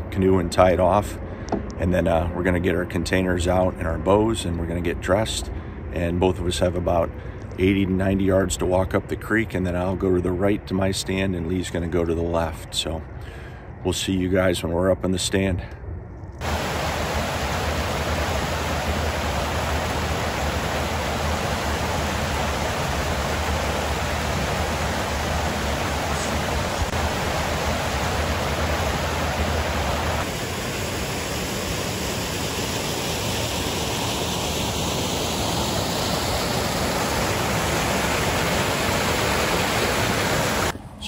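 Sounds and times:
water rushing over waterfall: 16.4 - 40.7.

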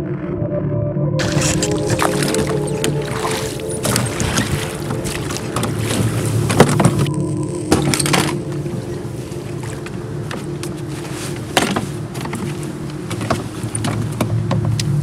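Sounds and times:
steady low drone: 0.0 - 15.0.

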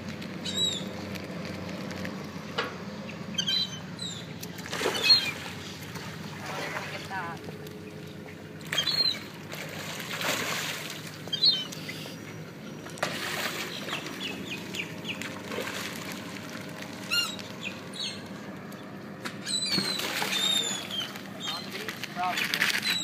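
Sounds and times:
birds chirping: 0.4 - 1.8, 2.4 - 9.5, 10.8 - 23.0
fish splashing at water surface: 4.4 - 6.9, 8.0 - 12.2, 12.8 - 17.6, 19.2 - 23.0.

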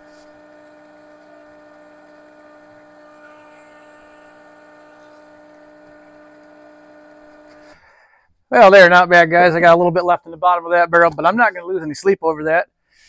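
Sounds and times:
electric pump humming: 0.0 - 8.1.

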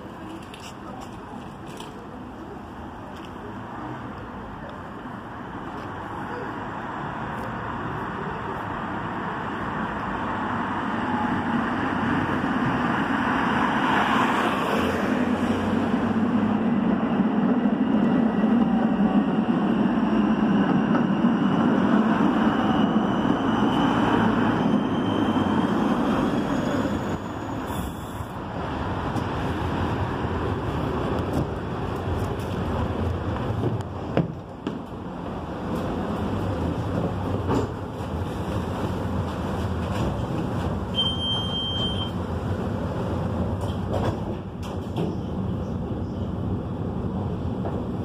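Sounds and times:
car traffic: 0.0 - 48.0
tram running on rails: 0.0 - 48.0.

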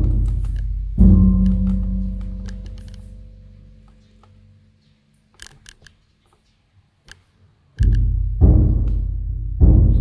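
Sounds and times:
deep drum-like booms: 0.0 - 2.5, 7.8 - 10.0.

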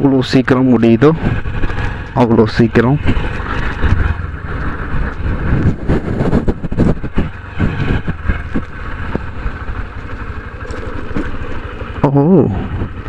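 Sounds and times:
motorcycle engine rumble: 0.0 - 13.0
wind rushing over microphone: 1.0 - 9.9, 12.5 - 13.0.

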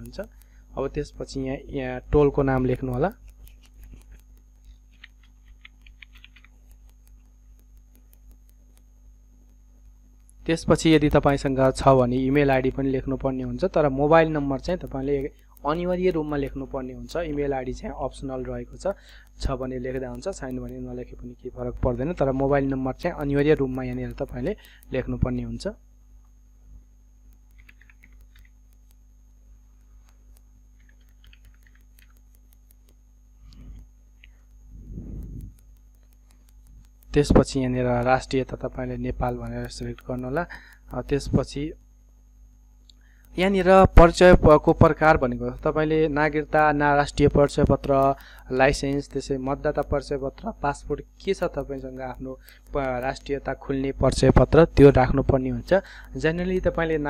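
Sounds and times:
steady low hum: 0.0 - 57.0
keyboard typing: 2.2 - 9.6, 27.3 - 29.0, 30.0 - 41.6
keyboard keys clicking: 2.6 - 8.6, 27.5 - 29.0, 30.3 - 33.0.

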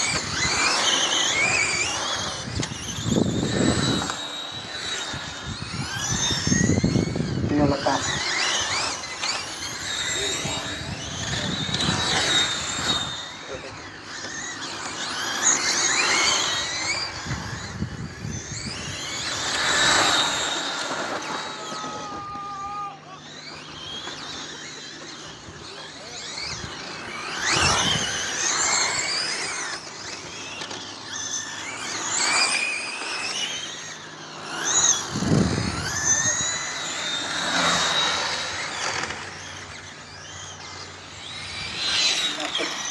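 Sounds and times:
rc car motors whining: 0.0 - 42.9.

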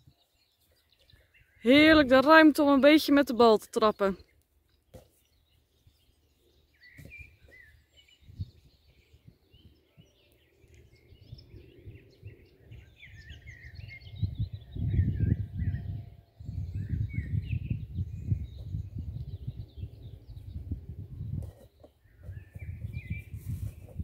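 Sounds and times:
songbirds chirping and singing: 0.0 - 24.0
wind rumble on microphone: 5.8 - 24.0.

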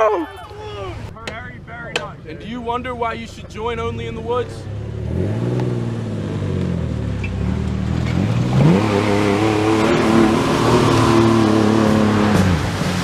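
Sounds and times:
truck engine revving: 3.8 - 13.0
water spray rushing: 8.2 - 13.0.

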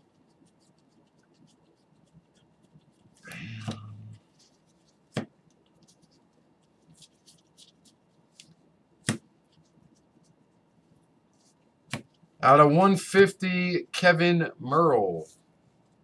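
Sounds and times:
faint ticks of cards brushing: 0.0 - 8.6.

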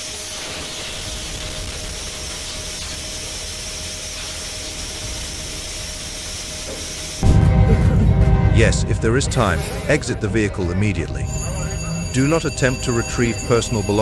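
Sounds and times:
steady hiss: 0.0 - 7.2.

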